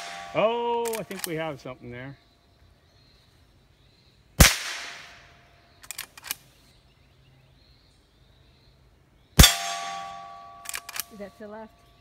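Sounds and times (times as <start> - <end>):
rifle shots: 0.0 - 1.4, 4.4 - 5.3, 9.4 - 11.2
rifle lever metallic clicks: 0.8 - 1.4, 5.8 - 6.4, 10.6 - 11.2.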